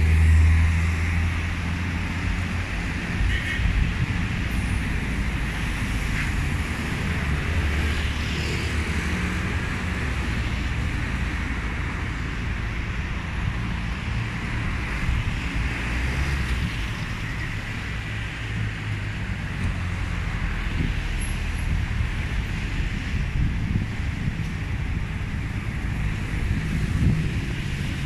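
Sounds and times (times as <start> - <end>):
city street traffic: 0.0 - 28.0
wind rumbling on microphone: 0.0 - 28.0.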